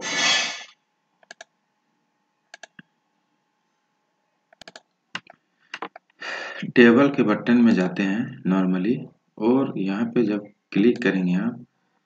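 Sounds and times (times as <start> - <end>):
computer mouse clicks: 1.2 - 1.5, 2.5 - 2.9, 4.5 - 6.1.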